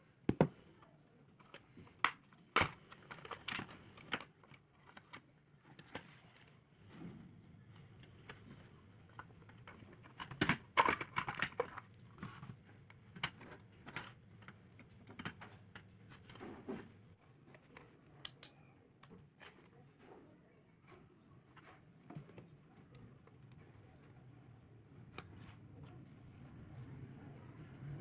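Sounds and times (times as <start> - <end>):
plastic parts clicking and knocking: 0.2 - 6.6, 7.8 - 20.2.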